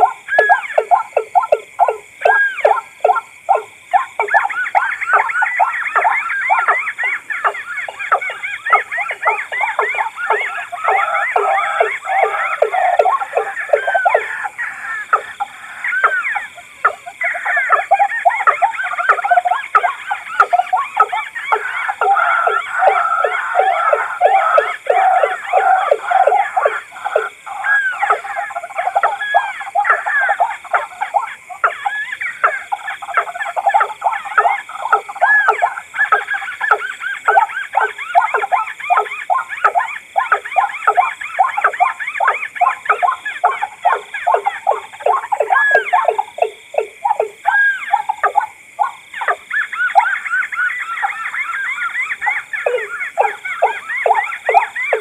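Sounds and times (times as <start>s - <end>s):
waterbirds croaking calls: 0.0s - 55.0s.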